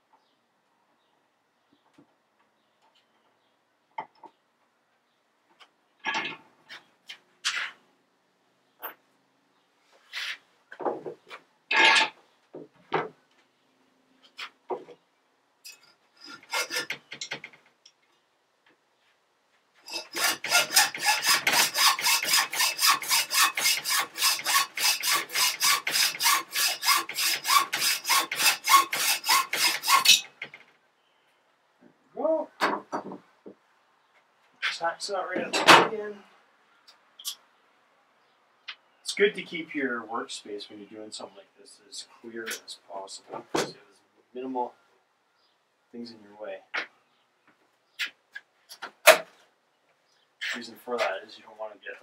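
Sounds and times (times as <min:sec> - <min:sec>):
tools knocking and clattering: 0:06.0 - 0:06.4, 0:10.8 - 0:13.2, 0:32.6 - 0:33.3, 0:35.4 - 0:35.9
rasping tool strokes on steel: 0:15.7 - 0:17.0, 0:19.9 - 0:30.3.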